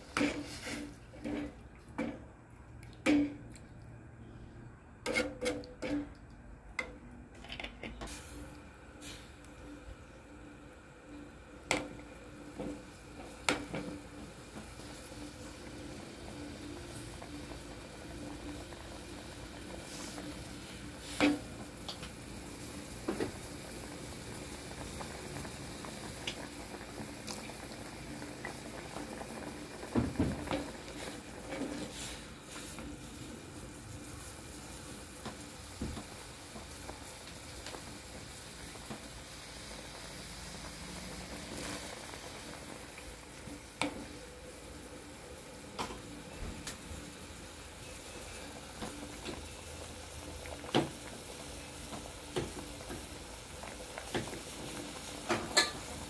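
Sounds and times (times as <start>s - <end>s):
curry bubbling in pot: 11.1s - 45.1s, 47.0s - 56.0s.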